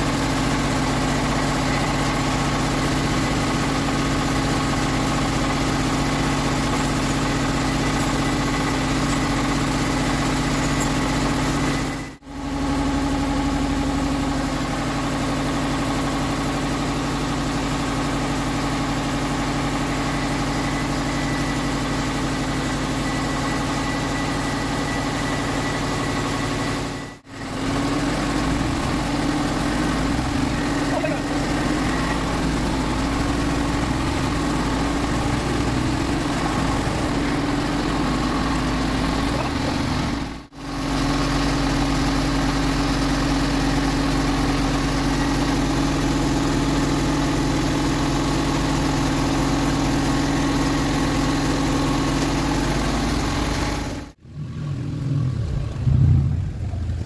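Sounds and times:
metal lathe humming: 0.0s - 12.2s, 27.3s - 54.2s.

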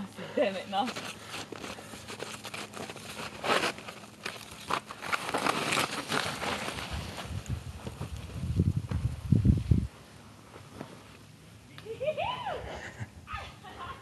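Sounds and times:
snow crunching and scraping: 0.4s - 8.6s.

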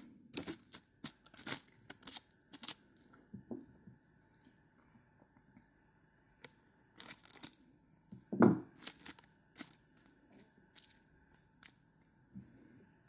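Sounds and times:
straw crinkling: 0.0s - 3.0s, 7.0s - 7.6s, 8.7s - 11.8s.

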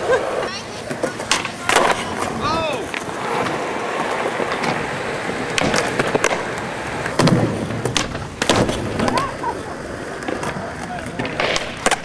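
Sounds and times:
skateboard clacking on ground: 0.0s - 12.0s
skateboard wheels rolling on concrete: 0.0s - 12.0s.

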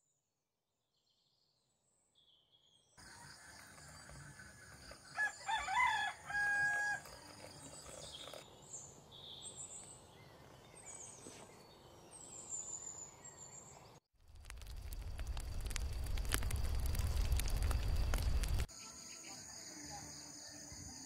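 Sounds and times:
rooster crowing: 3.0s - 7.2s
small birds chirping: 7.4s - 14.0s
high insect buzz: 17.5s - 21.0s.

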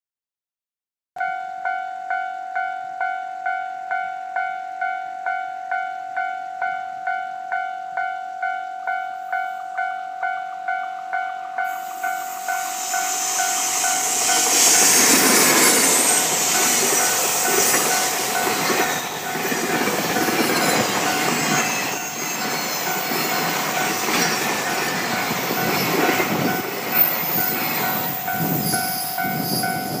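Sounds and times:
level crossing warning bell: 1.2s - 30.0s
train wheels rumbling on rails: 11.6s - 30.0s.

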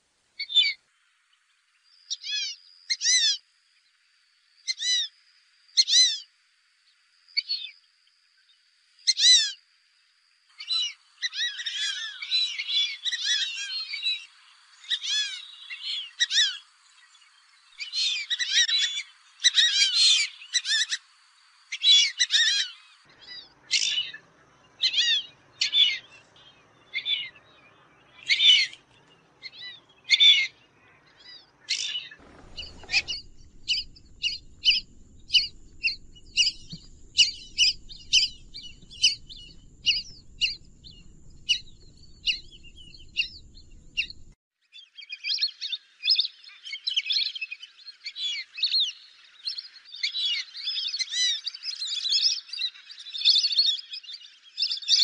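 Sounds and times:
ducks whistling: 29.4s - 44.4s.

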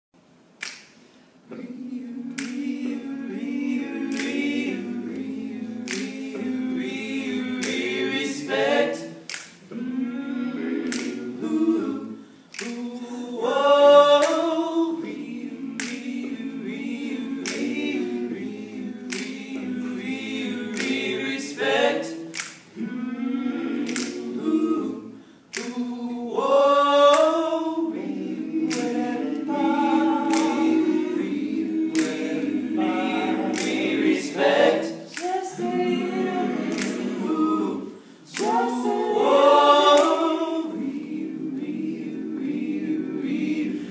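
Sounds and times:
finger snaps: 0.5s - 1.2s, 2.3s - 3.0s, 4.1s - 4.5s, 5.1s - 6.3s, 7.6s - 7.9s, 9.2s - 9.7s, 10.8s - 11.2s, 12.5s - 13.1s, 15.8s - 16.2s, 17.4s - 17.7s, 19.1s - 19.4s, 20.7s - 21.0s, 22.1s - 22.8s, 23.8s - 24.3s, 25.5s - 25.9s, 28.6s - 29.0s, 30.2s - 30.6s, 31.9s - 32.3s, 33.5s - 33.8s, 36.7s - 37.1s, 38.3s - 38.6s.

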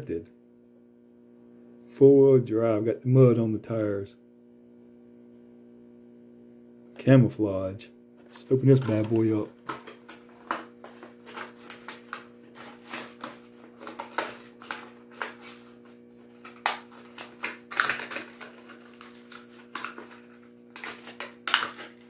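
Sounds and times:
plastic and card packaging tearing: 8.5s - 22.0s.

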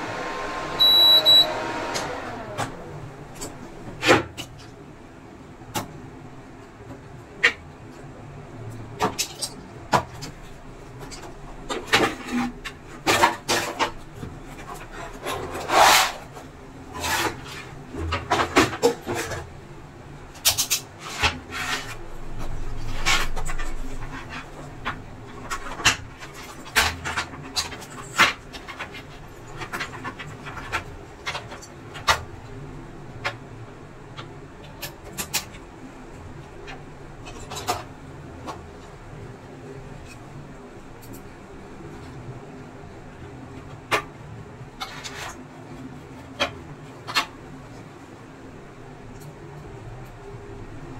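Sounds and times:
rubbing and scraping: 10.9s - 19.5s, 21.0s - 32.1s, 44.8s - 47.9s.

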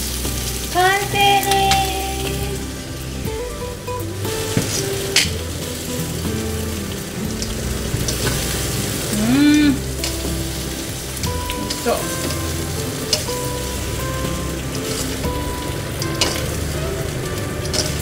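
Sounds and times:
background music: 0.0s - 18.0s
food sizzling in a frying pan: 0.0s - 18.0s
pitched vocal note: 9.1s - 10.0s.

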